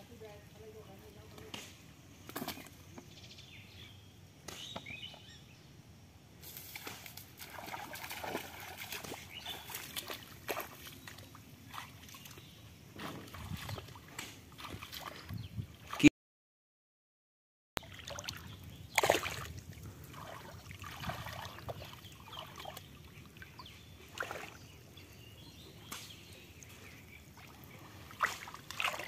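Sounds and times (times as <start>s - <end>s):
splashing steps in shallow water: 6.6s - 16.1s, 17.8s - 24.7s, 25.9s - 29.0s.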